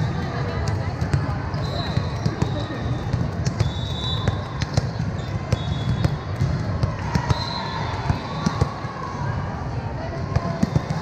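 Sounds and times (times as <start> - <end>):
volleyballs smacking and bouncing: 0.0 - 9.1, 10.2 - 11.0
shoe squeaks on gym floor: 1.5 - 6.2.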